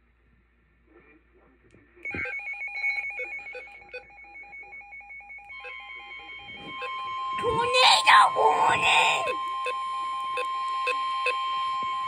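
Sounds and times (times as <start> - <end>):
steady high alarm tone: 2.1 - 12.0.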